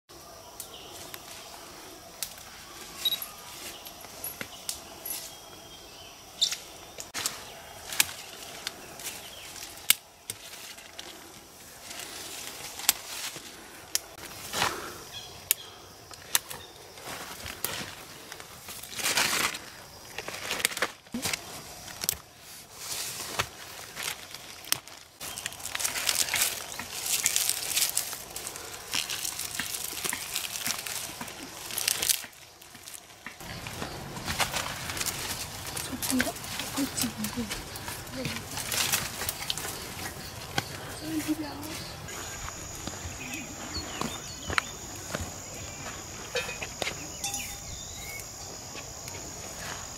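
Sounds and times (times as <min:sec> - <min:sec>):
leaves and twigs rustling: 0:00.1 - 0:49.9
stems and twigs snapping: 0:02.2 - 0:02.5, 0:06.4 - 0:11.2, 0:11.8 - 0:14.4, 0:17.3 - 0:22.3, 0:23.4 - 0:40.9.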